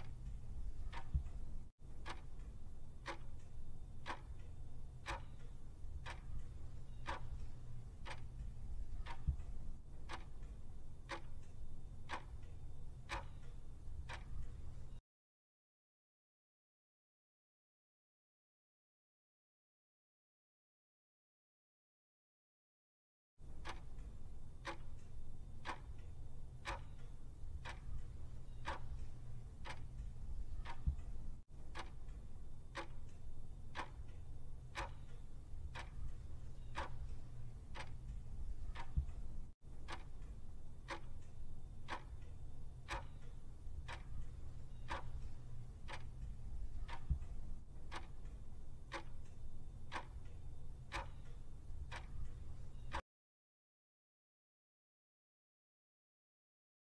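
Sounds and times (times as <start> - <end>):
clock ticking: 0.0 - 15.0, 23.4 - 53.0
low steady hum: 0.0 - 15.0, 23.4 - 53.0.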